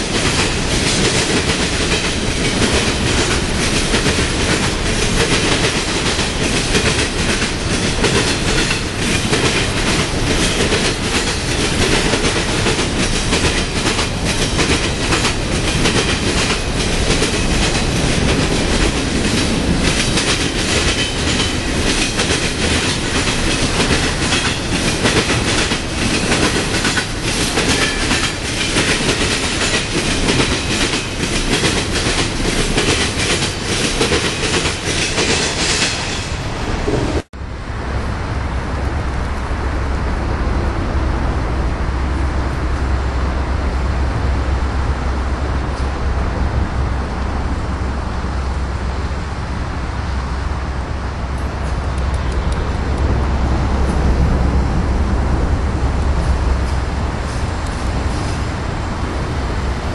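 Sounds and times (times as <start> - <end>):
train wheels clattering over rails: 0.0 - 37.3.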